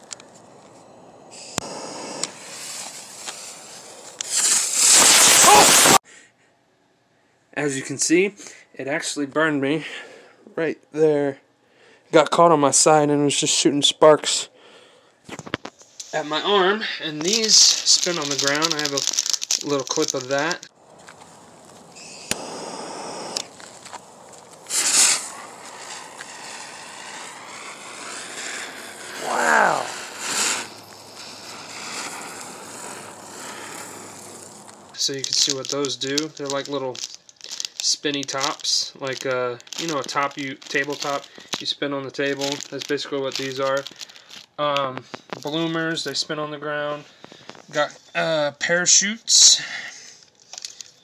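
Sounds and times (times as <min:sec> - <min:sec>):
firework hissing: 0:00.0 - 0:06.0, 0:15.9 - 0:44.1.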